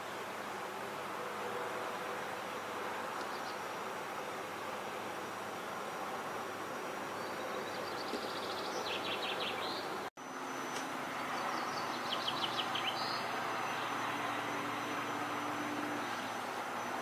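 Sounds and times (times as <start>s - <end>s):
steady outdoor rushing noise: 0.0s - 17.0s
songbird trilling: 11.2s - 14.0s.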